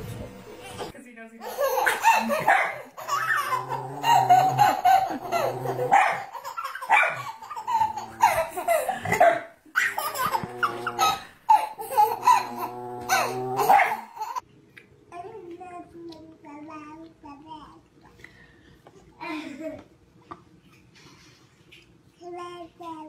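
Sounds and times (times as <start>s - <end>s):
baby laughing: 0.8s - 14.4s
small dog barking: 6.9s - 7.2s.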